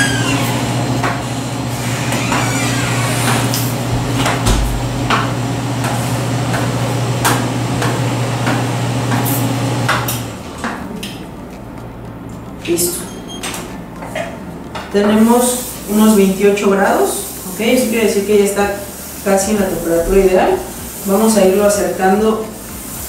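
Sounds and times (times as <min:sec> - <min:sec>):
low machine hum: 0:00.0 - 0:14.8.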